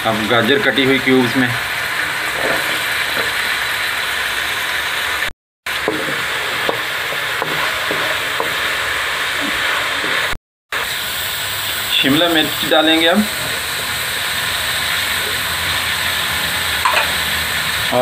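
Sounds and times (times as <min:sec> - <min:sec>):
food sizzling in oil: 0:00.0 - 0:18.0
wooden spatula scraping a wok: 0:00.4 - 0:03.9, 0:05.7 - 0:10.4.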